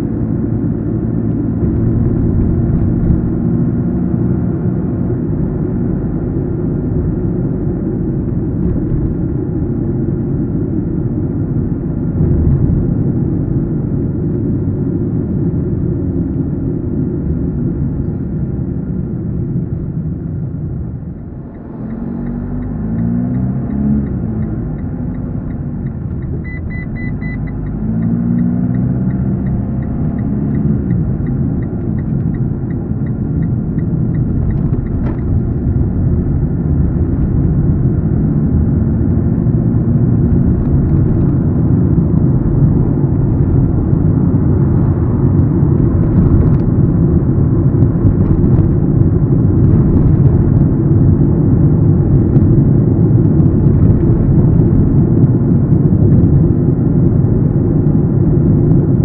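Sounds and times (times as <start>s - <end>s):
car engine and road rumble: 0.0s - 59.0s
turn signal ticking: 21.4s - 37.6s.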